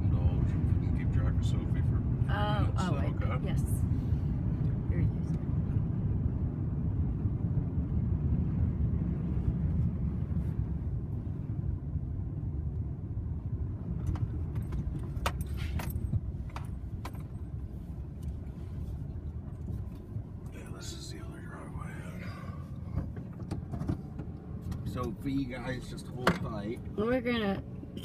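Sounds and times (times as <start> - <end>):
truck engine and road rumble: 0.0 - 28.0
rattles and clicks in cab: 13.9 - 18.4, 22.8 - 25.4, 26.1 - 28.0.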